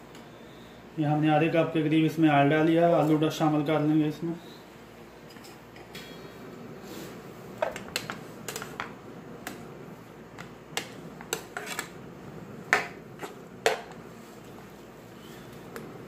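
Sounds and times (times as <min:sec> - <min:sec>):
spatula scraping a frying pan: 0:10.8 - 0:12.0, 0:13.1 - 0:13.4.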